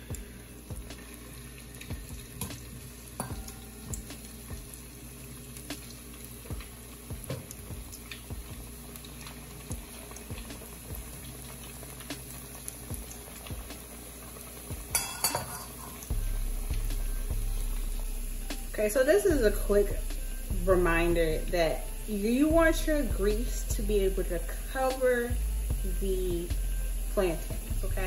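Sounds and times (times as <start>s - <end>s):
oil bubbling and sizzling: 0.0s - 28.0s.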